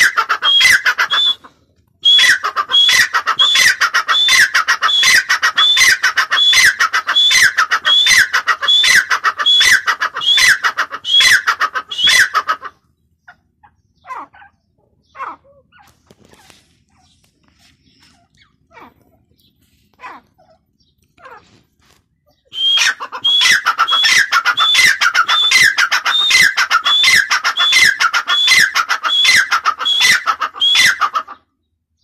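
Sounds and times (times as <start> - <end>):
francolin calling: 0.0 - 12.5, 22.3 - 31.1.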